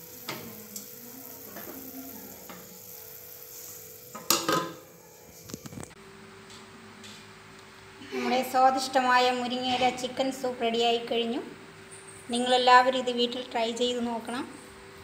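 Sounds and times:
metal lid clattering on pot: 0:04.2 - 0:04.8.

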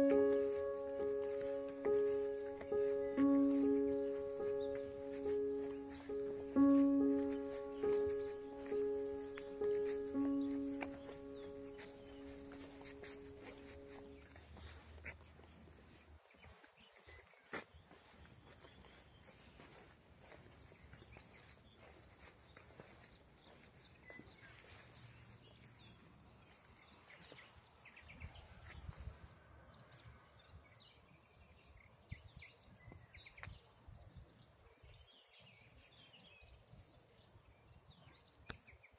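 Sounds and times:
small birds chirping: 0:00.0 - 0:38.9.

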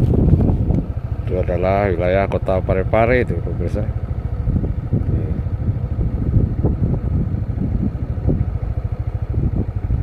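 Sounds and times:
engine running with pulsing rumble: 0:00.0 - 0:10.0.

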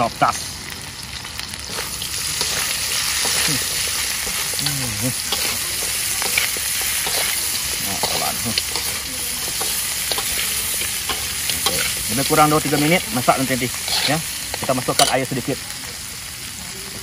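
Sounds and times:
meat sizzling in a wok: 0:00.0 - 0:17.0
metal spatula scraping pan: 0:01.7 - 0:15.3.

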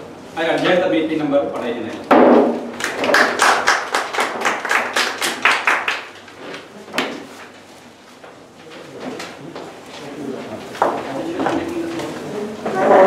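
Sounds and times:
audience clapping: 0:02.7 - 0:06.4.

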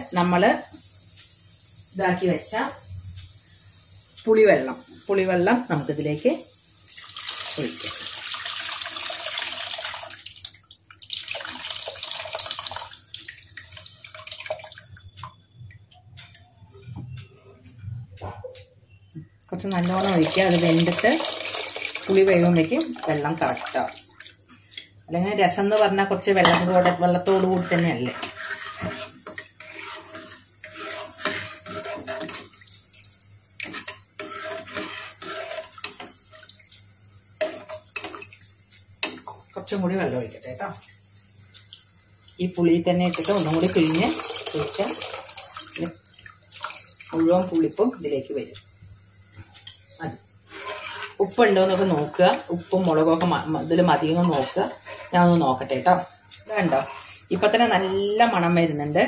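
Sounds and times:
water pouring into a pot: 0:06.8 - 0:15.4, 0:19.5 - 0:24.4, 0:40.8 - 0:49.3
liquid trickling: 0:06.9 - 0:16.4, 0:43.1 - 0:47.4
liquid sloshing in a pot: 0:19.0 - 0:24.9, 0:27.2 - 0:36.8, 0:43.0 - 0:47.5, 0:50.4 - 0:57.6.

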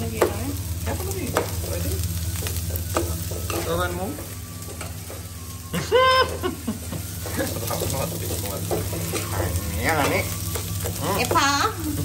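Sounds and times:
food sizzling in oil: 0:00.0 - 0:12.0
steady low hum: 0:00.0 - 0:12.0
spoon scraping pan: 0:07.2 - 0:11.6.

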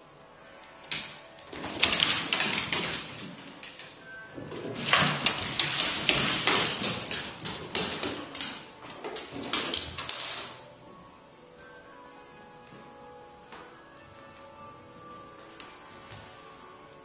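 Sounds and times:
claws skittering on wooden floor: 0:00.8 - 0:10.6.

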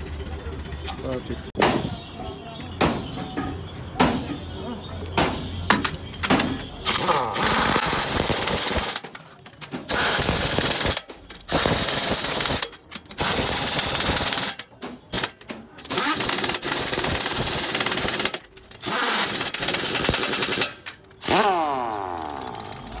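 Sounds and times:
pneumatic impact wrench hammering: 0:05.2 - 0:23.0.

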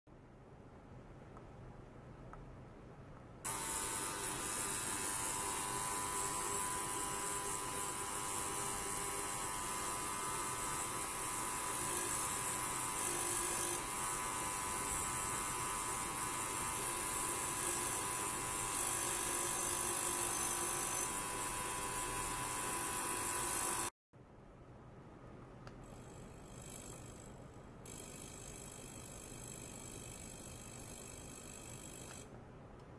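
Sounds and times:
steady tones: 0:03.5 - 0:23.9
ultrasonic cleaner hiss and buzz: 0:03.5 - 0:23.9.

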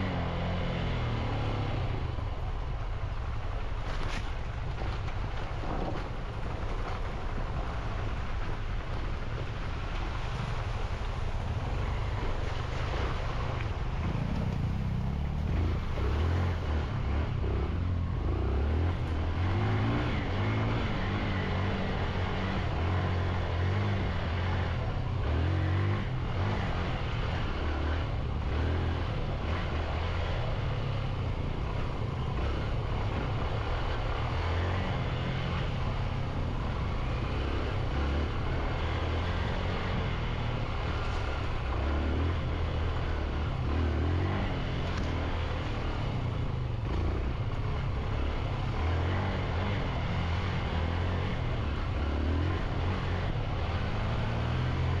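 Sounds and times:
motorcycle engine revving: 0:13.9 - 0:55.0.

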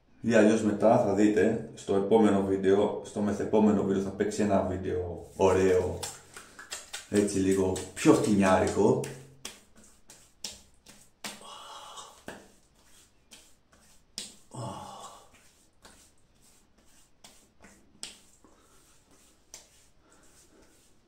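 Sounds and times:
hands slapping face: 0:05.4 - 0:20.8.

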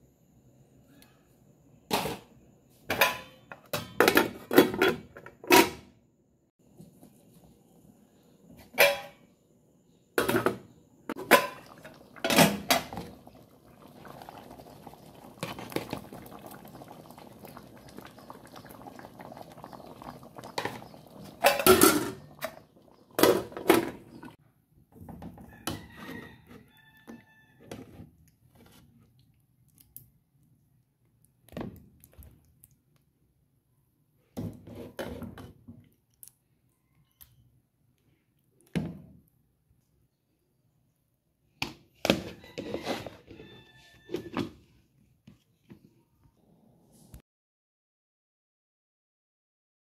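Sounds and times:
stirring noise: 0:11.1 - 0:24.4.

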